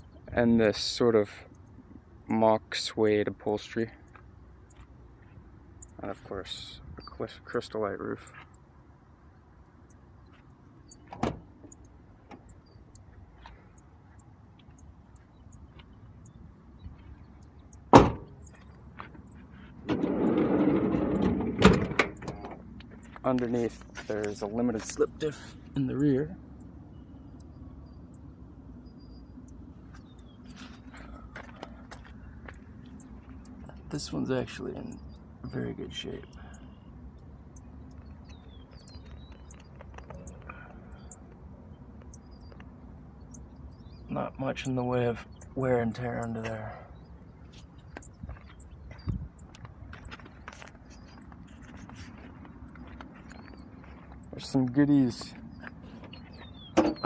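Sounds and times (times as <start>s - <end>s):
birds chirping and whistling: 10.8s - 57.0s
van door slamming: 11.1s - 11.5s, 17.9s - 18.4s, 19.8s - 22.6s
sliding door rolling on track: 19.9s - 22.1s.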